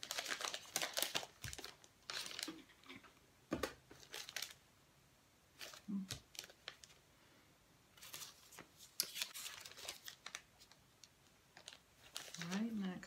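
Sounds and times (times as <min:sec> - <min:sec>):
paper rustling and crinkling: 0:00.0 - 0:03.0, 0:03.9 - 0:04.6, 0:05.6 - 0:07.0, 0:08.0 - 0:13.0.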